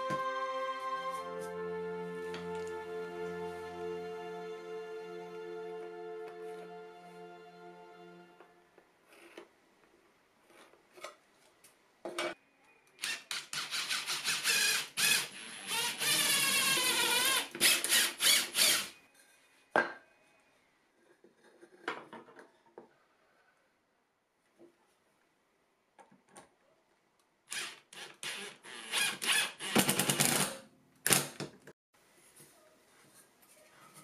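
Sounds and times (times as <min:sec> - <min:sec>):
cordless drill drilling into wood: 0:13.0 - 0:19.0, 0:27.5 - 0:30.4.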